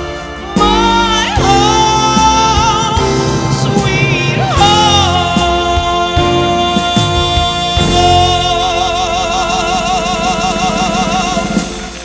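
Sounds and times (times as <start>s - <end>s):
live band accompaniment: 0.0s - 12.0s
drum hits: 1.4s - 8.3s.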